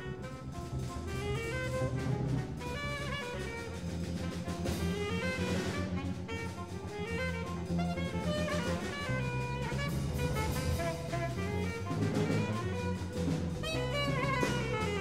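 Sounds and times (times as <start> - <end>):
drum kit: 0.0 - 15.0
horn section playing: 0.0 - 15.0
low bass line: 0.0 - 15.0.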